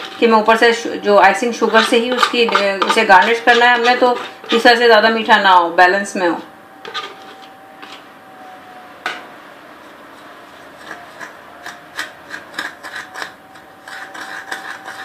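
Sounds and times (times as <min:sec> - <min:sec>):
spoon scraping in a bowl: 0:00.0 - 0:04.9, 0:06.8 - 0:08.0, 0:10.6 - 0:15.0.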